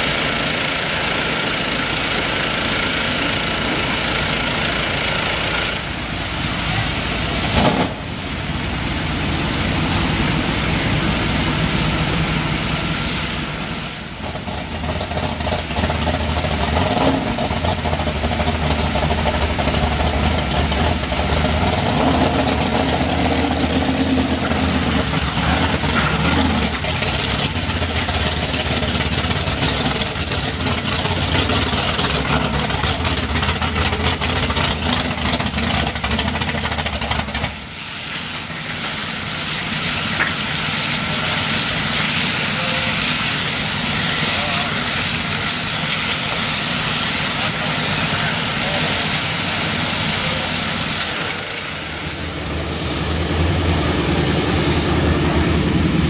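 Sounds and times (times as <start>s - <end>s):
engine idling: 0.0s - 56.0s
water spray hissing: 37.6s - 56.0s.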